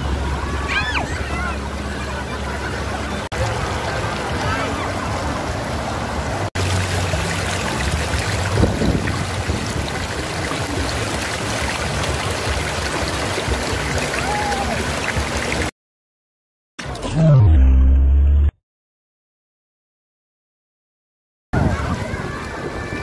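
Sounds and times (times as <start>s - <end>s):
river water rushing over rocks: 0.0s - 15.7s.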